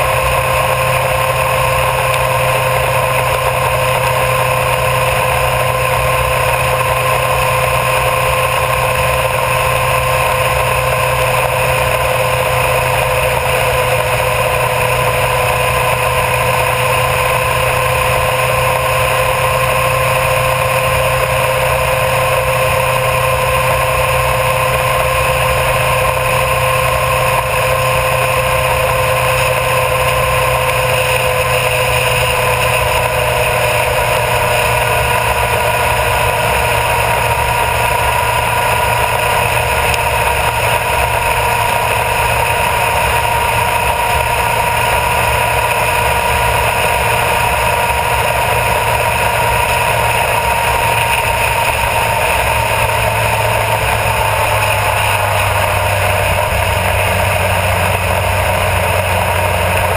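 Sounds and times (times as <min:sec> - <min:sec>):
motorcycle engine cruising: 0:00.0 - 0:59.9
wind and road noise: 0:00.0 - 0:59.9.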